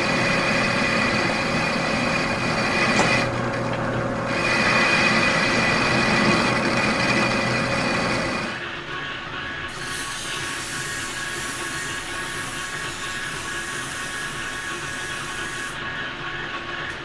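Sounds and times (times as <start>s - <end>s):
metal lathe humming: 0.0s - 17.0s
abrasive strip hissing on metal: 9.7s - 15.8s.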